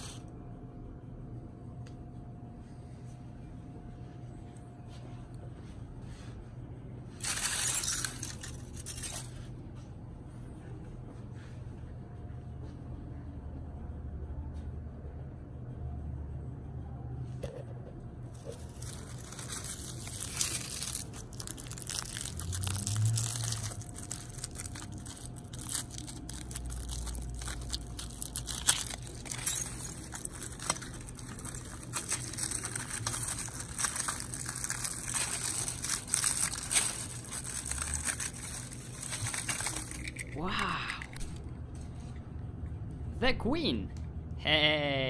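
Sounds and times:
aluminium foil crinkling: 7.1 - 9.5, 18.3 - 41.9.

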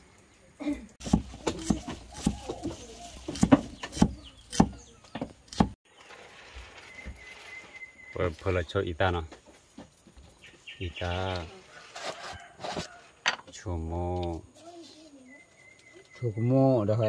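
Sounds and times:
cleaver chopping on wooden block: 1.0 - 5.8.

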